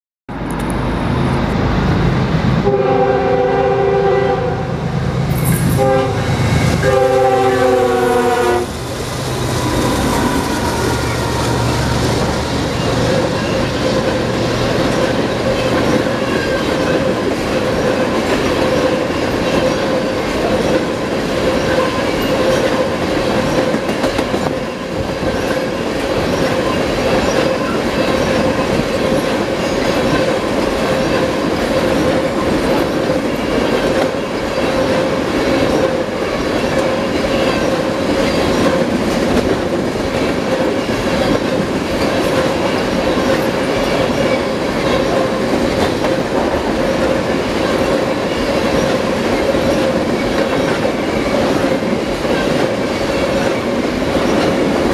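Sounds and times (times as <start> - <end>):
train air horn blasts: 2.6 - 4.8, 5.5 - 8.8
train wheels rumbling and clattering: 4.8 - 54.9.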